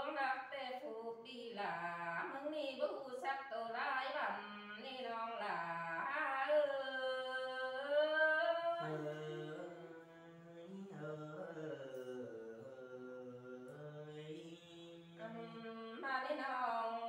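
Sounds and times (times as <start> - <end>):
person singing unaccompanied: 4.4 - 10.0, 15.1 - 17.0.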